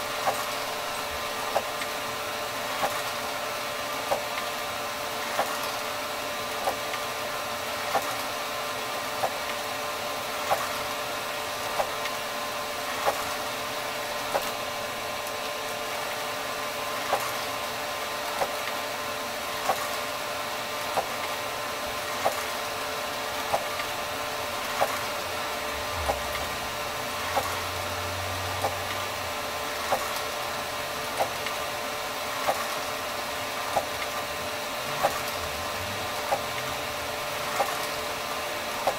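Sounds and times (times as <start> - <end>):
inkjet printer humming: 0.0 - 38.9
printer sharp click: 35.0 - 35.4.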